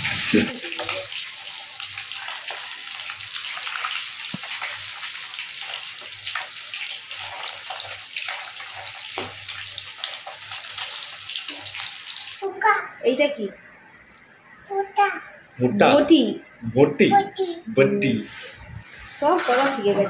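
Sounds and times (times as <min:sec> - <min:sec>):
fish sizzling in hot oil: 0:00.0 - 0:12.4
metal spatula scraping: 0:18.2 - 0:20.0.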